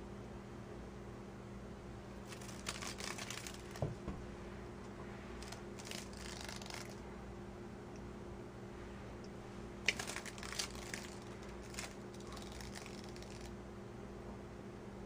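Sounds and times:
low steady hum: 0.0s - 15.0s
dry scratching and rustling: 2.2s - 3.9s, 5.3s - 7.0s, 9.8s - 13.5s
cat batting insect on tile floor: 2.2s - 4.2s, 5.4s - 7.0s, 9.9s - 13.5s
soft thump: 3.8s - 4.3s.

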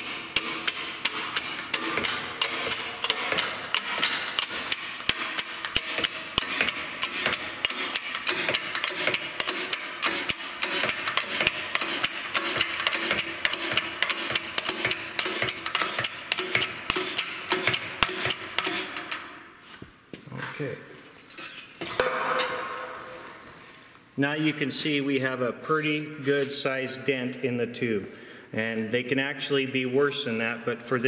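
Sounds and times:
sharp metallic taps: 0.0s - 19.2s.

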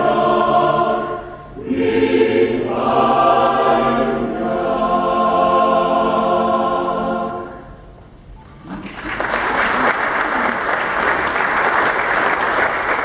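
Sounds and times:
choir holding chord: 0.0s - 7.9s
audience applause: 8.6s - 13.0s.

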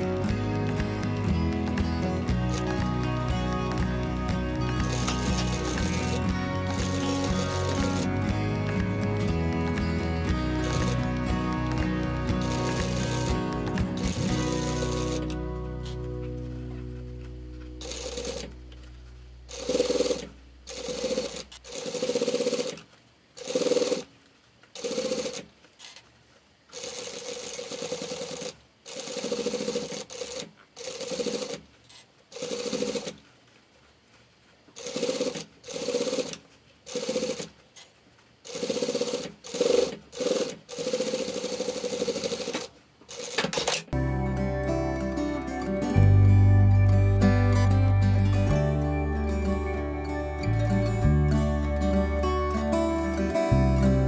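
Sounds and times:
sewing machine stitching: 4.7s - 8.1s, 17.8s - 18.5s, 19.5s - 24.1s, 24.8s - 26.0s, 26.7s - 33.2s, 34.8s - 37.9s, 38.5s - 43.9s.

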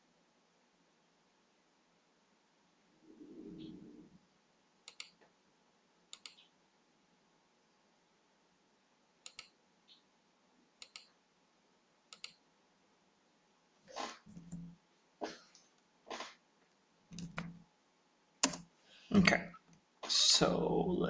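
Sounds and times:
low hum: 2.8s - 4.4s
computer mouse clicks: 4.8s - 5.3s, 6.1s - 6.5s, 9.2s - 10.0s, 10.8s - 11.2s, 12.1s - 12.4s, 17.1s - 17.6s, 18.4s - 18.7s.

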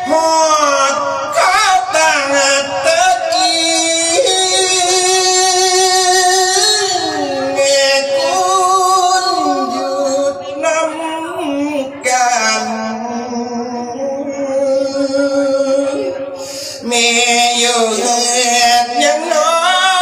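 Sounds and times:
monk chanting melodically: 0.0s - 20.0s.

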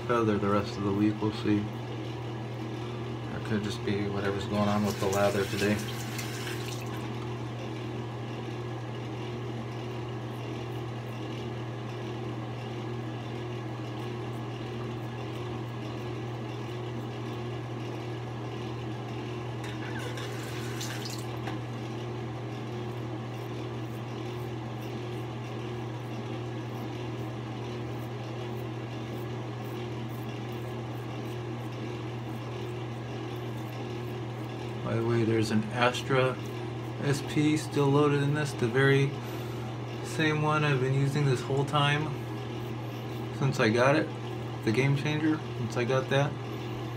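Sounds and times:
low hum with faint hiss: 0.0s - 7.8s, 13.4s - 22.0s.

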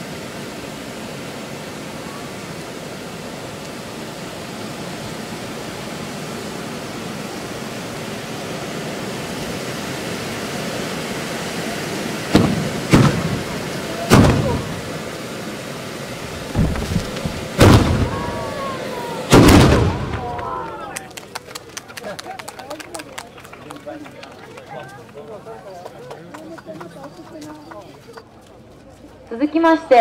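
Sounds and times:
fireworks spraying roar: 0.0s - 28.3s
sharp firework bangs: 12.2s - 15.0s, 16.2s - 18.6s, 19.3s - 20.5s.

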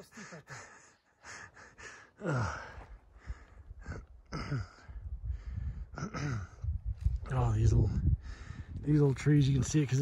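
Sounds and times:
man breathing hard: 0.1s - 6.0s, 8.1s - 8.8s
man sighing: 2.2s - 2.9s.

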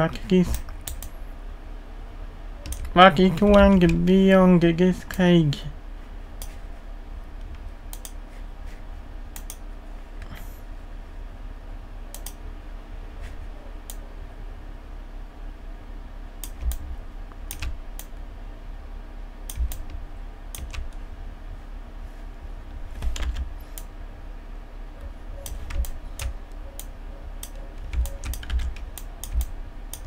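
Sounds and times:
steady low hum: 0.0s - 30.0s
keyboard and mouse clicks: 0.4s - 1.1s, 2.6s - 4.0s, 7.4s - 8.2s, 9.3s - 9.6s, 12.1s - 12.4s, 16.4s - 18.1s, 19.5s - 21.0s, 23.0s - 23.9s, 25.0s - 30.0s.

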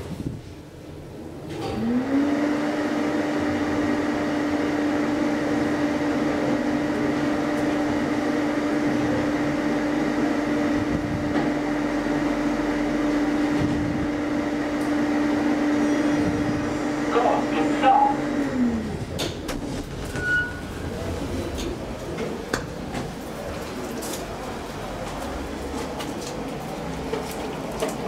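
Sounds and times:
elevator hum with held tone: 0.0s - 28.0s.

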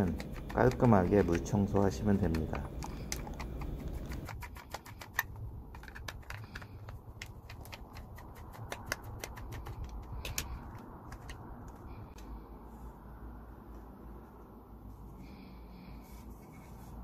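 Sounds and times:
screwdriver clicks and ticks: 0.0s - 12.3s.

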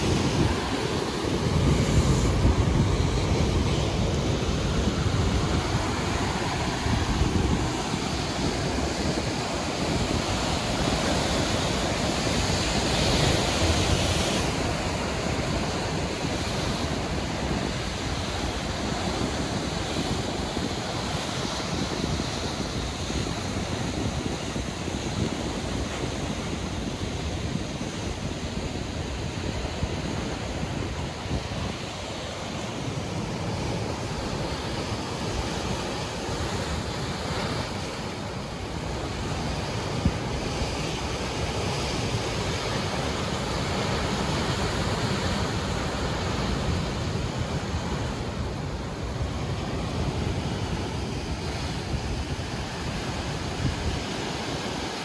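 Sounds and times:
ocean waves breaking: 0.0s - 55.0s.

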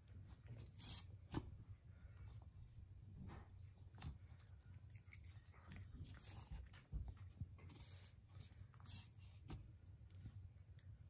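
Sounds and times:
dog chewing: 3.6s - 7.3s.

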